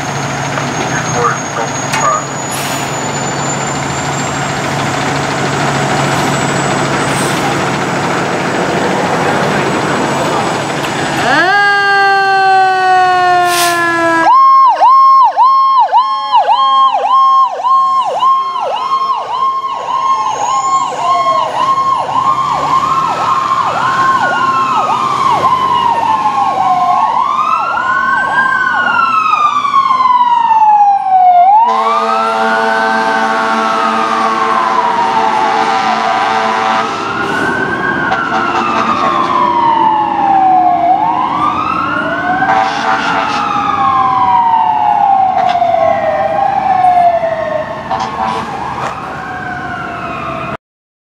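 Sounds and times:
siren wail: 0:00.0 - 0:07.2, 0:08.8 - 0:50.6
electronic siren yelping: 0:00.9 - 0:02.5, 0:11.2 - 0:32.8, 0:33.7 - 0:50.6
horn blast: 0:31.6 - 0:39.4, 0:42.4 - 0:43.5, 0:47.8 - 0:48.6.

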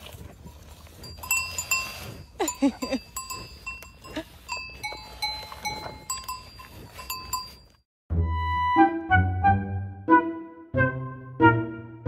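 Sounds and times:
cowbells clanking: 0:00.9 - 0:07.8.

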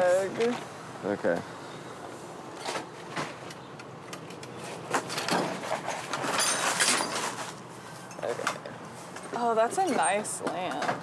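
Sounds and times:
rustling and clattering: 0:02.5 - 0:11.0.

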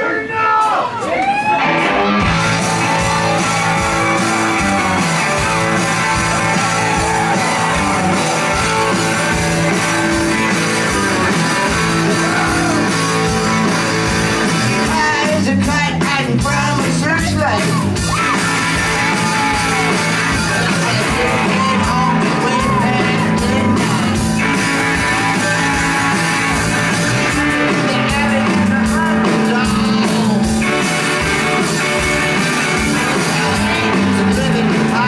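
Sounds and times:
rock band playing: 0:00.6 - 0:35.0
lead vocal singing: 0:14.7 - 0:18.2, 0:18.8 - 0:32.1, 0:33.0 - 0:35.0.

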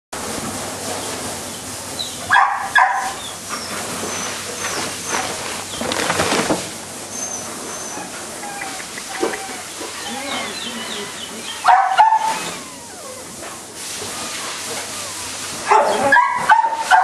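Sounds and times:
dog barking: 0:02.3 - 0:03.2, 0:11.5 - 0:13.1, 0:14.9 - 0:17.0
rustling: 0:03.5 - 0:07.9.

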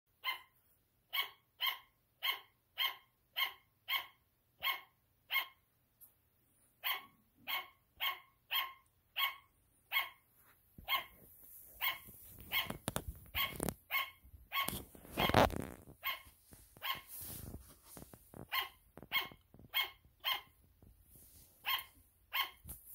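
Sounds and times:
sugar glider barking: 0:00.2 - 0:05.7, 0:06.8 - 0:10.2, 0:10.8 - 0:11.2, 0:11.8 - 0:17.2, 0:18.3 - 0:20.6, 0:21.6 - 0:22.7
rustling: 0:10.3 - 0:22.9.

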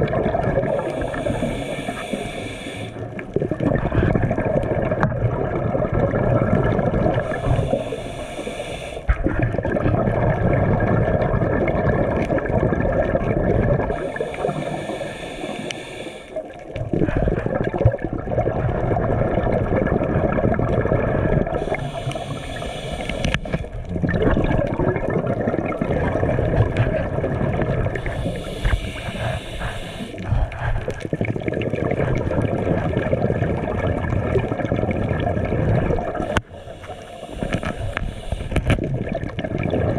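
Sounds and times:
bubbling underwater: 0:00.0 - 0:01.7, 0:02.8 - 0:08.1, 0:09.1 - 0:14.7, 0:16.4 - 0:36.5, 0:37.4 - 0:39.9
diver breathing through regulator: 0:00.6 - 0:03.2, 0:07.0 - 0:09.4, 0:13.8 - 0:17.4, 0:21.4 - 0:23.9, 0:27.8 - 0:31.3, 0:36.0 - 0:38.9.

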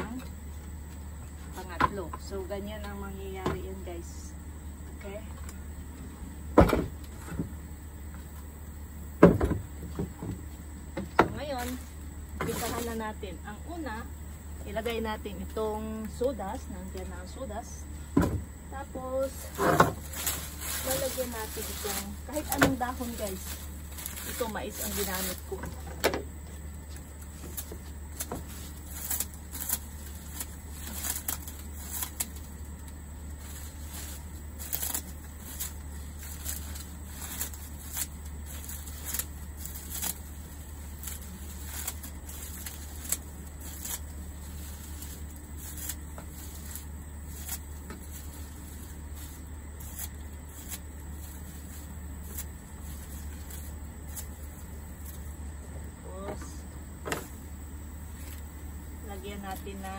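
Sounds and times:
steady low hum: 0:00.0 - 0:59.9
scissors snipping dry leaves: 0:11.4 - 0:14.0, 0:19.1 - 0:55.4
leaves rustling: 0:11.4 - 0:59.9.

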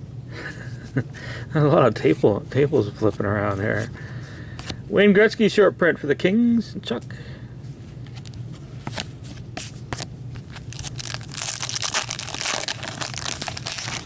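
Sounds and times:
foil wrapper tearing and crinkling: 0:10.4 - 0:14.0.

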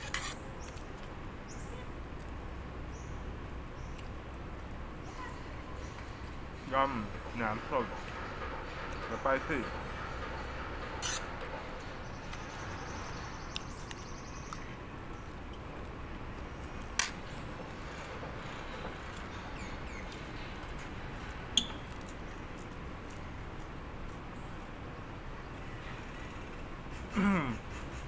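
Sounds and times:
steady background noise: 0:00.0 - 0:28.0.

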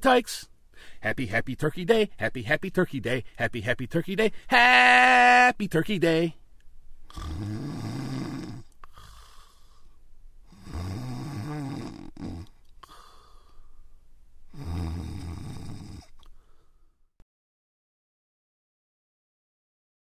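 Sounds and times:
faint breathing: 0:00.7 - 0:01.1, 0:04.3 - 0:04.5, 0:08.4 - 0:10.8, 0:12.4 - 0:14.7, 0:16.0 - 0:17.1
person snoring: 0:07.1 - 0:09.9, 0:10.5 - 0:13.5, 0:14.5 - 0:16.2.

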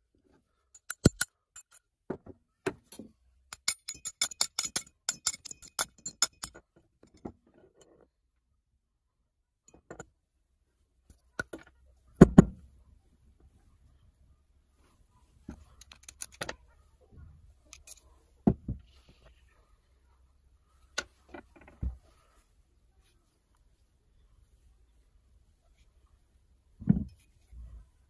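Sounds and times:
rusty metal parts clicking: 0:00.7 - 0:01.8, 0:02.9 - 0:07.2, 0:15.8 - 0:16.6, 0:17.7 - 0:18.0.

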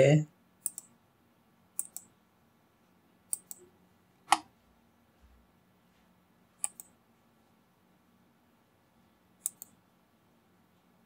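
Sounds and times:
computer mouse clicks: 0:00.6 - 0:01.0, 0:01.8 - 0:02.1, 0:03.3 - 0:03.7, 0:04.3 - 0:04.5, 0:06.6 - 0:07.0, 0:09.4 - 0:09.8.

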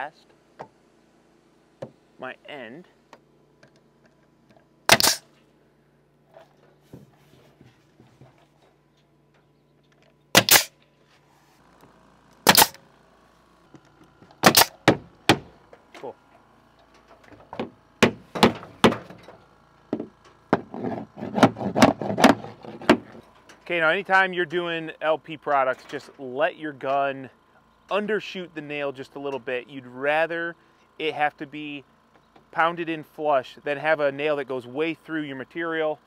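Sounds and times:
hammer blows: 0:04.9 - 0:05.2, 0:12.5 - 0:12.8
pneumatic nailer firing: 0:04.9 - 0:05.4, 0:10.3 - 0:10.8, 0:12.4 - 0:12.8, 0:14.2 - 0:15.7, 0:17.4 - 0:19.4, 0:21.1 - 0:23.2.

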